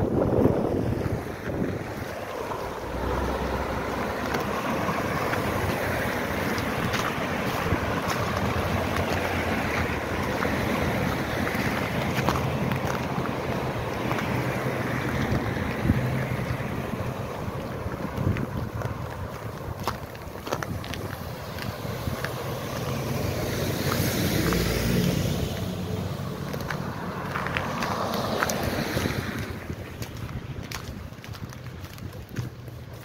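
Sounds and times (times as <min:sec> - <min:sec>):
footsteps on icy pavement: 0:00.0 - 0:33.0
low engine hum: 0:00.0 - 0:33.0
street traffic passing: 0:00.0 - 0:33.0
wind buffeting microphone: 0:00.0 - 0:33.0.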